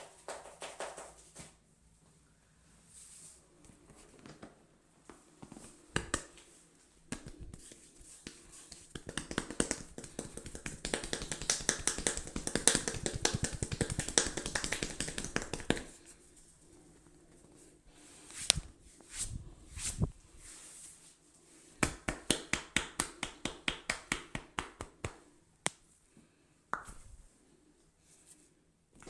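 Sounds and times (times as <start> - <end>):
hands tapping on a head: 0.0 - 1.5, 5.4 - 6.4, 7.1 - 16.0, 21.8 - 25.8.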